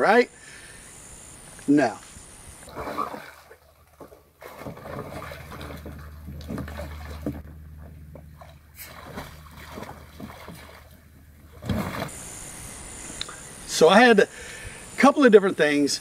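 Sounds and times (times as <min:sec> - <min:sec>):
water splashing against kayak hull: 0:02.6 - 0:13.1
low rumble: 0:04.8 - 0:11.6.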